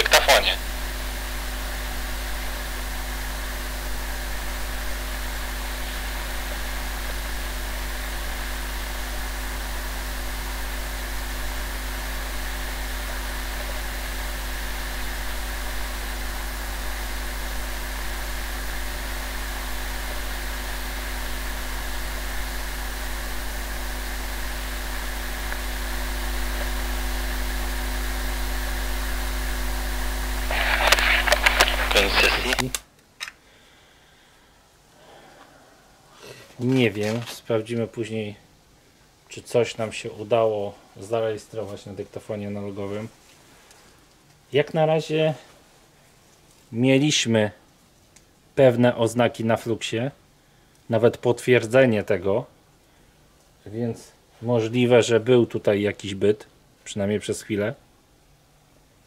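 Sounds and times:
low electrical hum: 0.0s - 59.0s
steady hiss: 0.0s - 59.0s.

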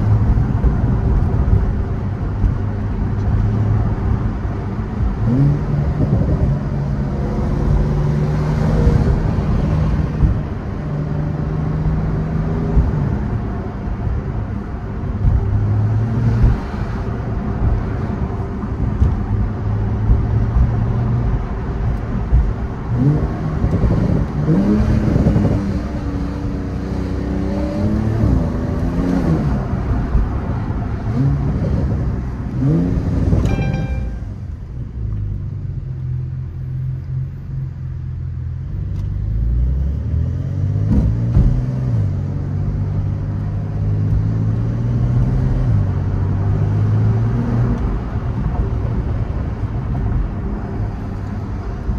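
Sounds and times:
car engine accelerating: 0.0s - 37.0s
road noise inside car: 0.0s - 51.9s.

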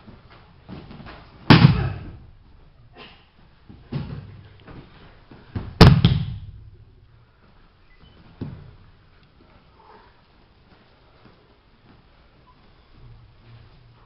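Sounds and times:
bodies slamming onto floor mats: 0.6s - 2.3s, 3.7s - 6.8s
feet thumping on mats: 3.3s - 6.8s, 8.2s - 8.9s.

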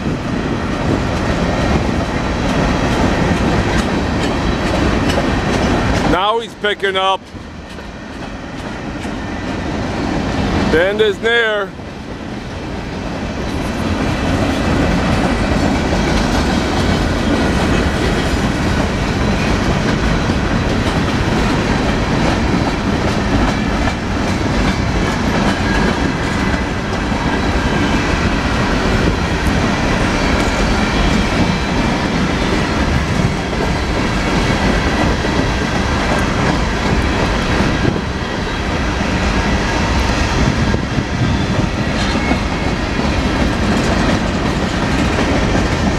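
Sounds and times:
train wheels rumbling on track: 0.0s - 45.9s
wheels clicking over rail joints: 0.1s - 6.3s, 42.0s - 45.9s.

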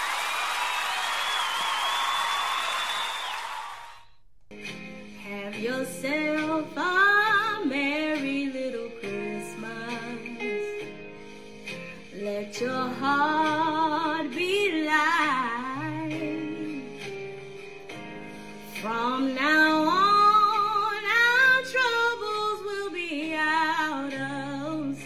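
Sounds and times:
instrumental backing: 4.5s - 25.0s
woman singing gospel: 5.2s - 10.7s, 12.2s - 16.9s, 18.7s - 25.0s.

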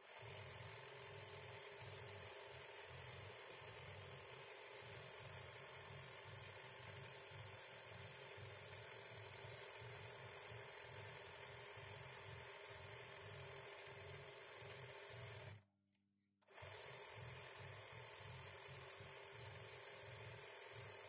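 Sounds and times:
sewing machine motor humming: 0.0s - 15.7s, 16.5s - 21.0s.

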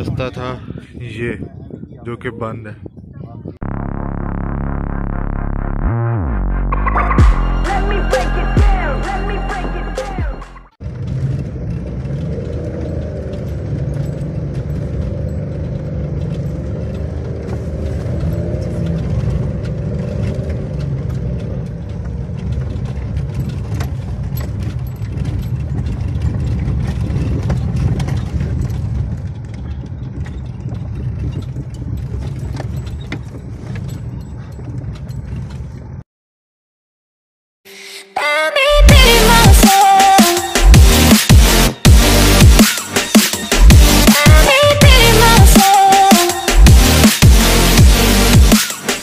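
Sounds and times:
car engine and tyre rumble: 0.0s - 36.0s, 40.6s - 49.0s
bodywork rattling and knocking: 10.8s - 36.0s.

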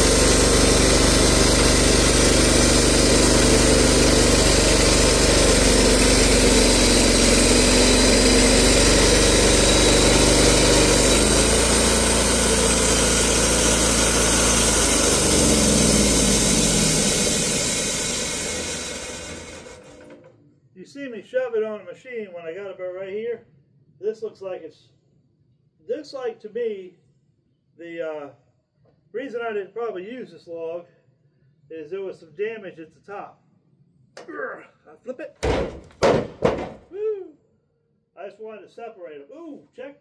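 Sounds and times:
sawmill engine running: 0.0s - 20.4s.

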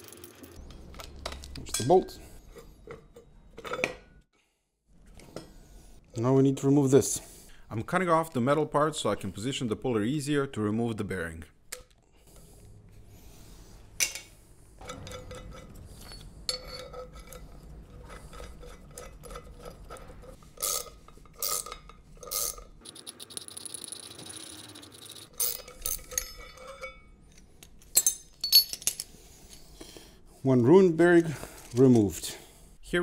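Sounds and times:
steel tools clinking: 0.0s - 4.2s, 14.0s - 29.7s.

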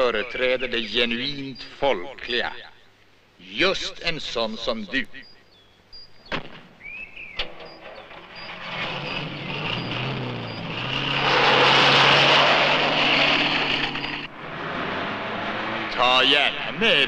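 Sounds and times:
car engine pulling away: 8.0s - 17.0s.

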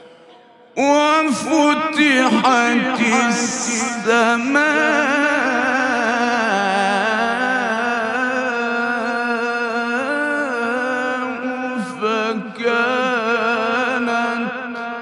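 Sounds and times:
man reciting melodically: 0.8s - 15.0s.

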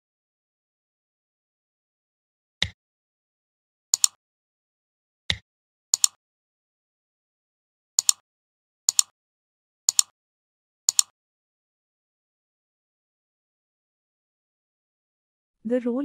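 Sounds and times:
computer mouse clicks: 4.0s - 4.2s, 6.0s - 6.2s, 8.0s - 8.2s, 8.9s - 9.1s, 9.9s - 10.1s, 10.9s - 11.1s
dull single clicks: 4.0s - 4.2s, 6.0s - 6.2s, 8.0s - 8.2s, 8.9s - 9.1s, 9.9s - 10.1s, 10.9s - 11.1s.

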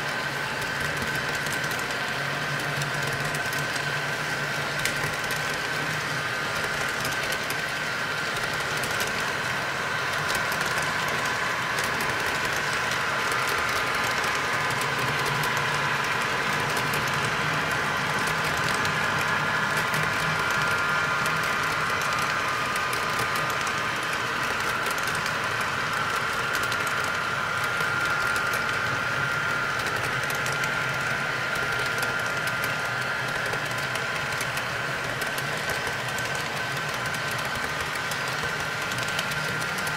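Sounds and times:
model train cars rolling on track: 0.0s - 39.9s.

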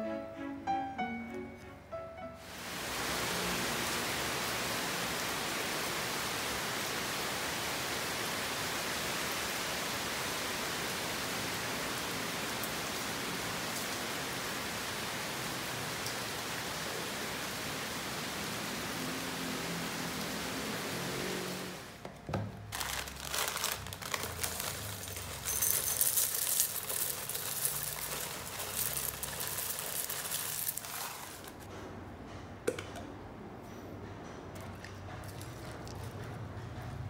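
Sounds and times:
steady rain falling: 2.4s - 22.0s, 22.7s - 31.7s.

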